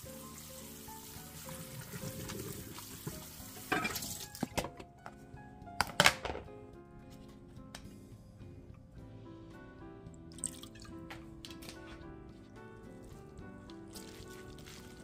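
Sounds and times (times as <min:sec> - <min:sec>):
tap water running: 0:00.0 - 0:04.6, 0:13.6 - 0:15.0
background music: 0:00.0 - 0:15.0.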